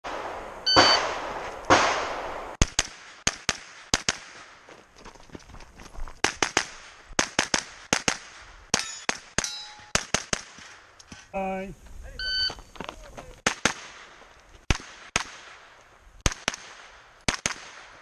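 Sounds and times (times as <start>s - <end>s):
carbine gunshots: 0.1s - 4.5s, 6.2s - 10.8s, 13.4s - 18.0s
shot timer beep: 0.7s - 1.0s, 12.2s - 12.6s.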